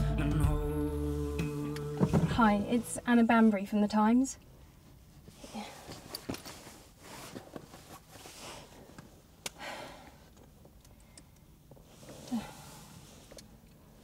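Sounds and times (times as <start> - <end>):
soft breaths: 4.5 - 14.0
rustling in a handbag: 4.8 - 9.3.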